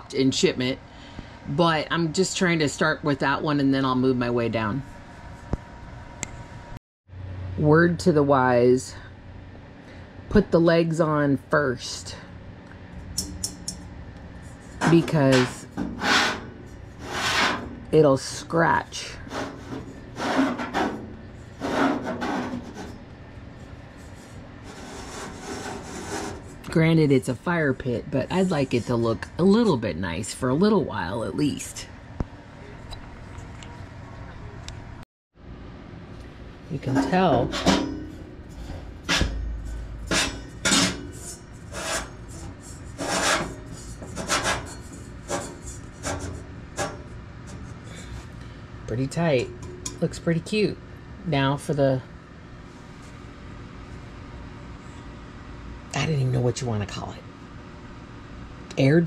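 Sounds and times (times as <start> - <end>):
metal rasping scrapes: 14.4 - 17.9, 19.2 - 23.1, 24.0 - 26.7, 36.8 - 48.1.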